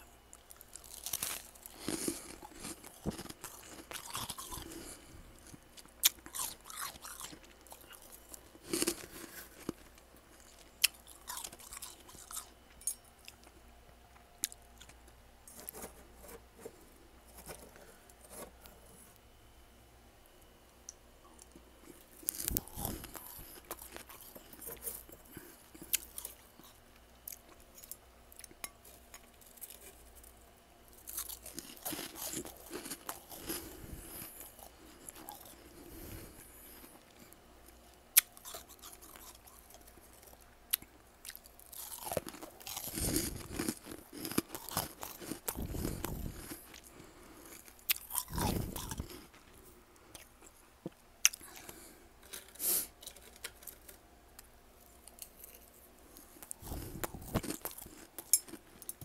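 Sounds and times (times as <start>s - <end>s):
person crunching frost: 0.5s - 12.5s, 21.8s - 26.7s, 31.0s - 37.3s, 41.3s - 50.3s, 55.0s - 58.8s.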